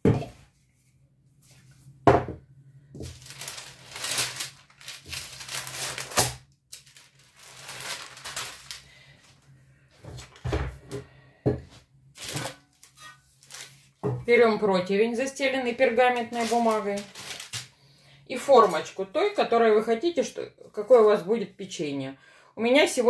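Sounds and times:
knock: 0:02.1 - 0:02.4
baking paper rustling and crinkling: 0:03.0 - 0:10.9, 0:12.2 - 0:14.6, 0:15.6 - 0:17.8, 0:18.4 - 0:19.4.

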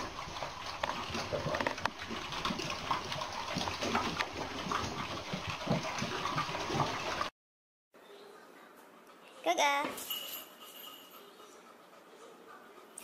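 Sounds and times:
dogs lapping and chewing: 0:00.0 - 0:07.3
metal bowls clinking: 0:09.9 - 0:11.6.

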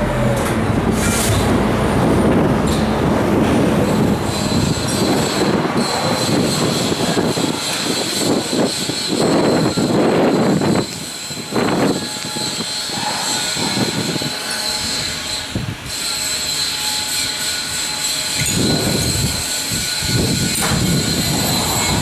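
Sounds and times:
steady high whine: 0:00.0 - 0:22.0.

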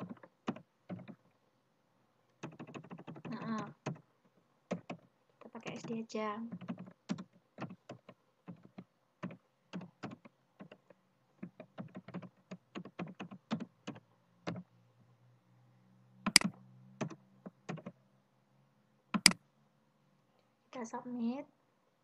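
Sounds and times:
typing on computer keyboard: 0:00.0 - 0:01.2, 0:02.4 - 0:04.1, 0:04.7 - 0:14.7, 0:16.3 - 0:18.0, 0:19.2 - 0:19.4.

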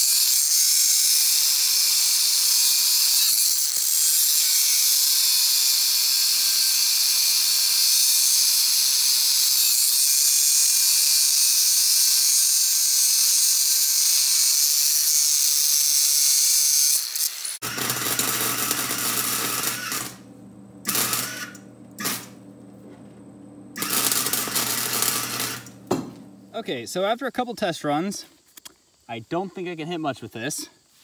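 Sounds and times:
angle grinder cutting steel: 0:00.0 - 0:23.0, 0:23.7 - 0:26.4.

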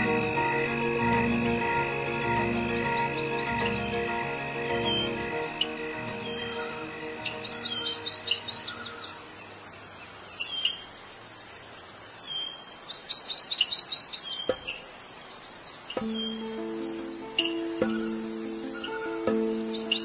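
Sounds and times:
insect chorus: 0:00.0 - 0:20.0
rapid bird-like chirps: 0:00.0 - 0:20.0
low held tones: 0:16.0 - 0:20.0.

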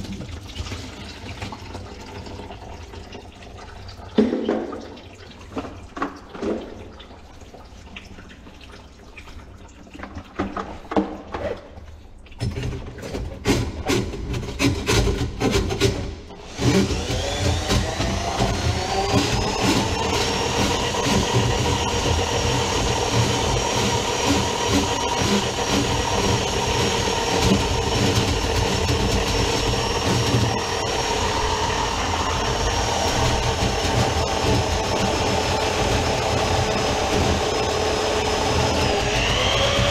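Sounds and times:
drain snake motor whining: 0:16.5 - 0:39.9.

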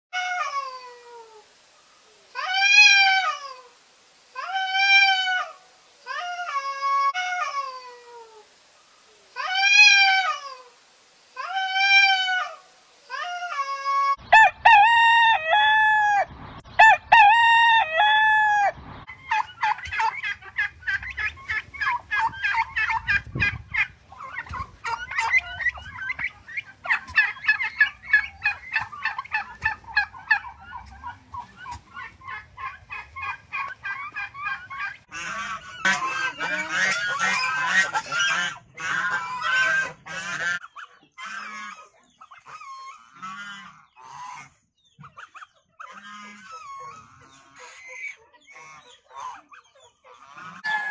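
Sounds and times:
turkeys gobbling: 0:02.3 - 0:03.8, 0:04.4 - 0:07.8, 0:09.4 - 0:10.8, 0:11.4 - 0:50.9
rooster crowing: 0:14.3 - 0:18.8, 0:50.6 - 0:50.9
rapid clucking calls: 0:18.8 - 0:50.8.

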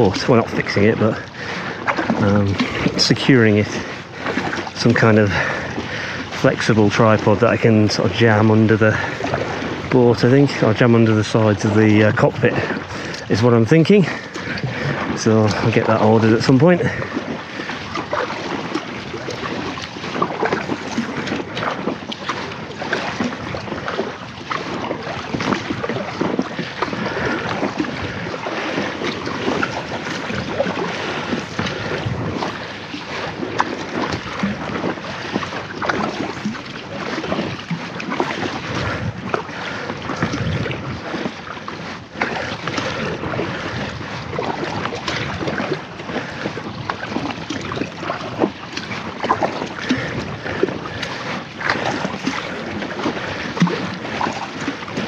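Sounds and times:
paddle splashing in water: 0:00.0 - 0:55.0
water sloshing against hull: 0:00.0 - 0:55.0
wind gusting on microphone: 0:24.8 - 0:34.9, 0:38.4 - 0:41.3.

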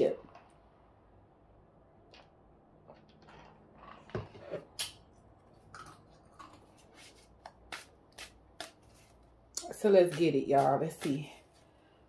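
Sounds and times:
cards being shuffled: 0:07.0 - 0:09.2.

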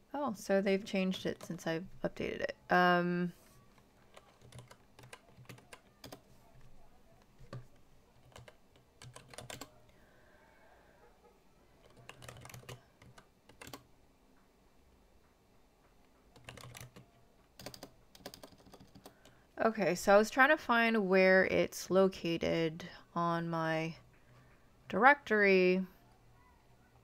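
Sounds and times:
keyboard typing: 0:03.6 - 0:10.0, 0:11.8 - 0:13.9, 0:16.2 - 0:19.4.

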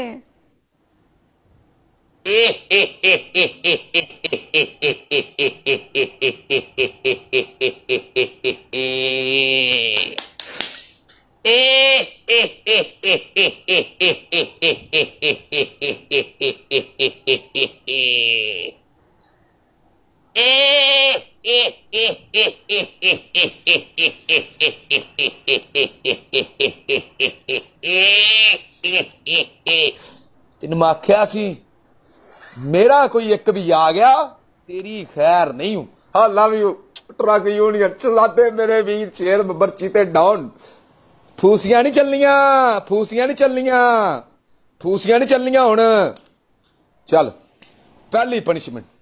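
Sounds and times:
man laughing: 0:02.2 - 0:18.8, 0:20.3 - 0:30.2.

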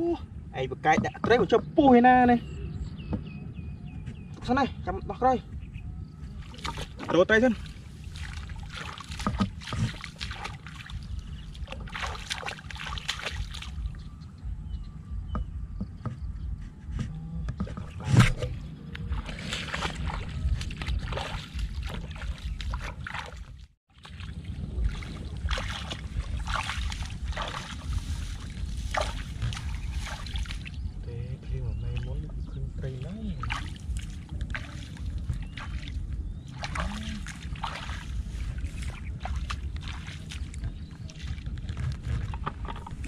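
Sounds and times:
low rumble: 0:00.0 - 0:23.2, 0:24.0 - 0:43.0
feet sloshing through water: 0:06.3 - 0:14.2, 0:17.6 - 0:31.0, 0:32.8 - 0:43.0.

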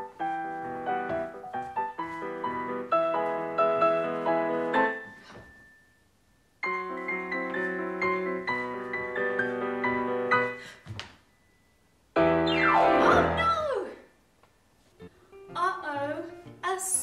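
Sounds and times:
solo piano music: 0:00.0 - 0:05.8, 0:06.6 - 0:10.6, 0:12.2 - 0:13.5.

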